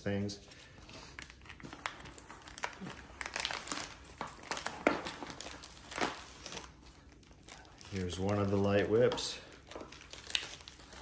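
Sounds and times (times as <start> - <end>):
plastic and bubble wrap crinkling: 0.5 - 11.0.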